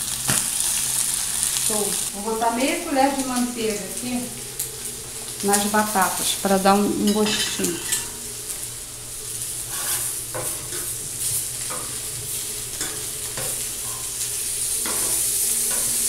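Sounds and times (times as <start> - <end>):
food sizzling on griddle: 0.0 - 16.0
metal spatula scraping griddle: 7.1 - 8.2, 9.6 - 14.1, 14.8 - 16.0.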